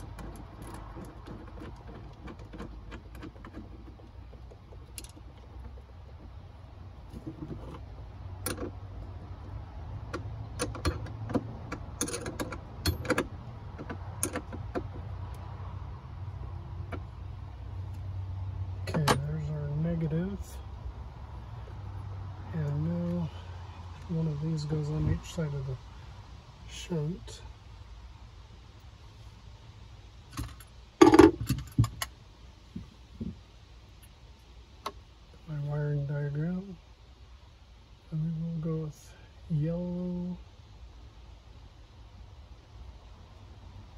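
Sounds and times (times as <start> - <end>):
metal hardware clicking and clinking: 9.4 - 15.4, 30.4 - 32.1.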